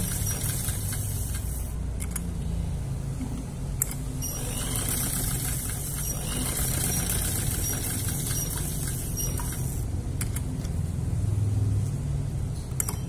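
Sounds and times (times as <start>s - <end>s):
sewing machine stitching: 0.0s - 1.5s, 4.2s - 9.8s.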